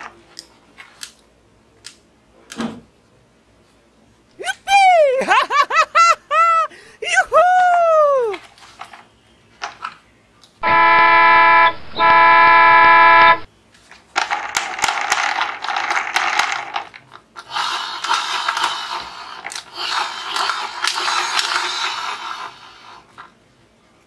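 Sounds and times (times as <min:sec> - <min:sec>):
plastic toys clattering and scraping: 0:08.3 - 0:10.0, 0:13.7 - 0:23.4
bus horn blasts: 0:10.6 - 0:13.5.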